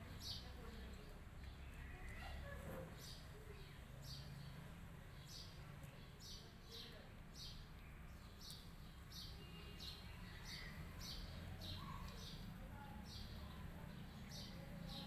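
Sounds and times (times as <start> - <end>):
small bird chirping: 5.2 - 15.0.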